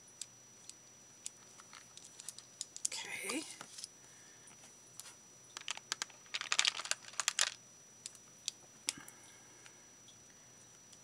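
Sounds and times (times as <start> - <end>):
beads clicking in plastic box: 5.6 - 7.6.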